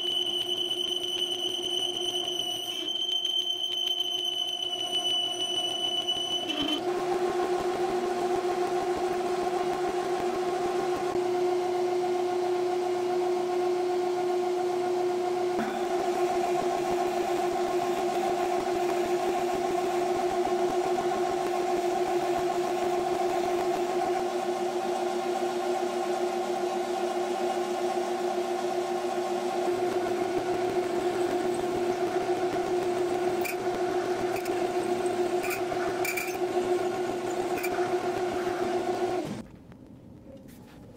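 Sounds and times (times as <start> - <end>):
drill boring into metal bar: 0.0 - 7.0, 29.8 - 39.2
high-pitched ringing of cutting tool: 0.0 - 7.0, 15.6 - 22.0, 29.8 - 38.1
metal lathe two-tone whine: 0.0 - 39.4.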